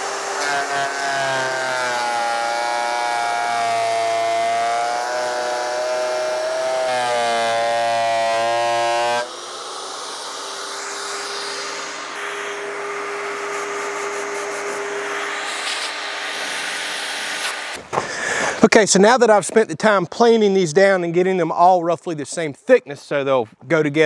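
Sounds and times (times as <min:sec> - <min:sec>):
thickness planer motor whine: 0:00.0 - 0:17.8.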